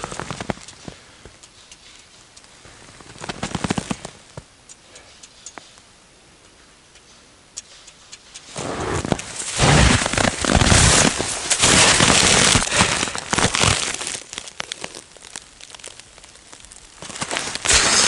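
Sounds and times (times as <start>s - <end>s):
crunching and crackling: 0.0s - 4.5s, 8.3s - 18.0s.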